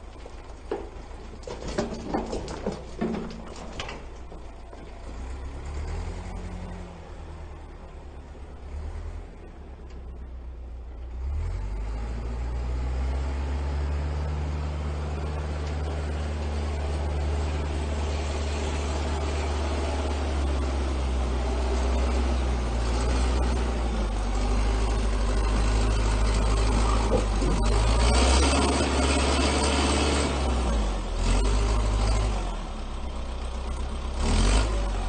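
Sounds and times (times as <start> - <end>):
vehicle engine running: 12.4 - 35.0.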